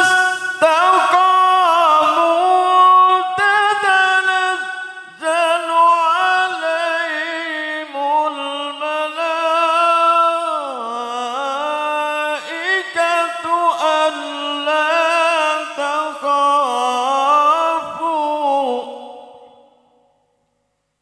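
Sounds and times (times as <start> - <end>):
man reciting melodically: 0.0 - 19.8.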